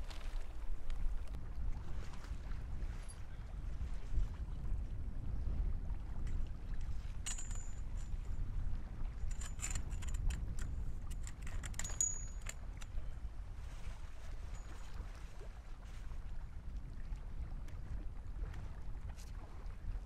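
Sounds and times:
low rumble of wind: 0.0 - 20.0
metal tent pole clinking: 7.2 - 8.3, 9.2 - 13.0.

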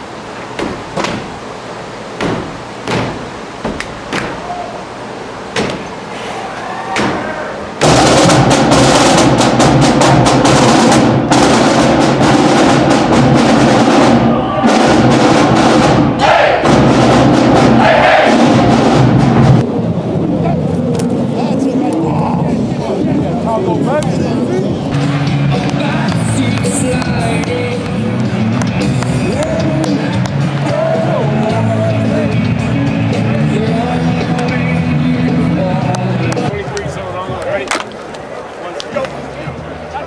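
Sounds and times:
sharp knocks and claps: 0.6 - 1.3, 2.2 - 4.4
marching band playing: 7.8 - 19.6
snare and bass drums: 7.8 - 19.6.

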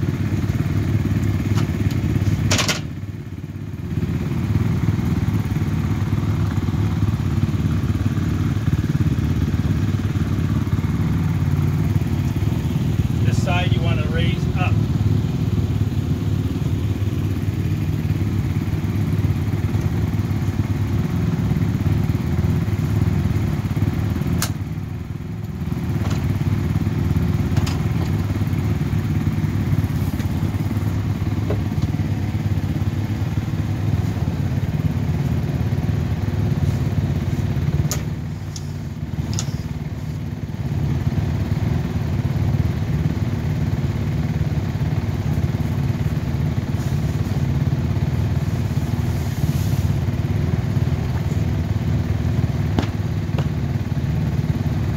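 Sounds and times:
low mechanical rumble: 0.0 - 54.9
sharp clicks and knocks: 1.5 - 2.9, 27.5 - 28.2.

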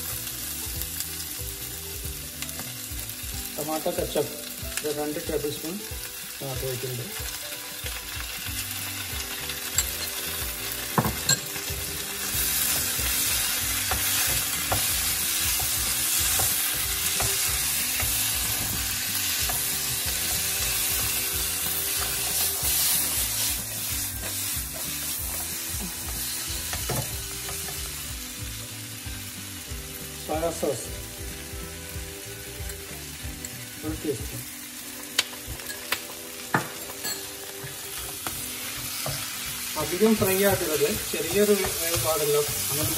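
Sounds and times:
vegetables sizzling in a wok: 0.0 - 42.9.

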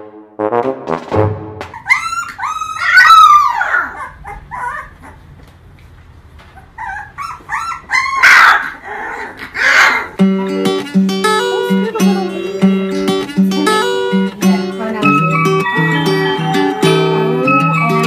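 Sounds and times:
puppies whining and yipping: 1.7 - 5.4, 6.5 - 12.9, 15.1 - 18.0.

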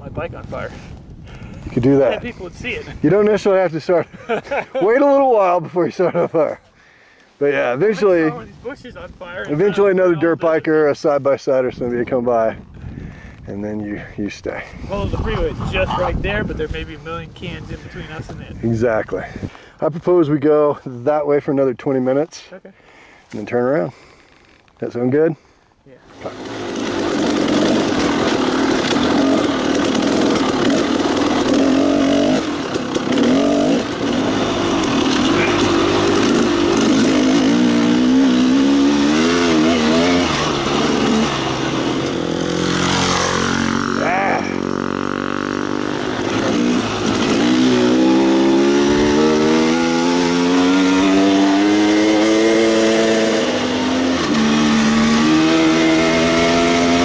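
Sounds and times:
two-stroke dirt bike engine: 26.1 - 57.0.

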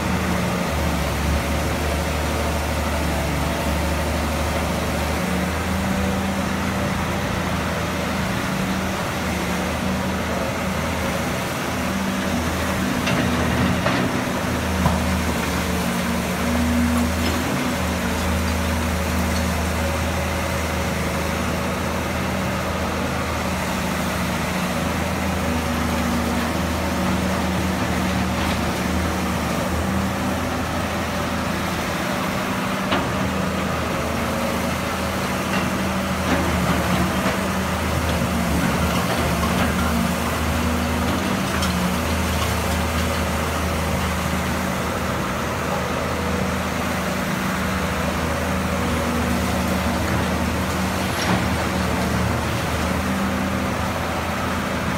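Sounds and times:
excavator diesel engine running: 0.0 - 54.9.

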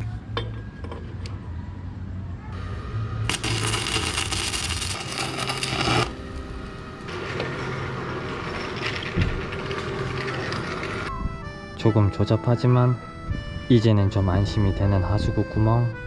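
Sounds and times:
welding arc crackling: 3.2 - 11.1.

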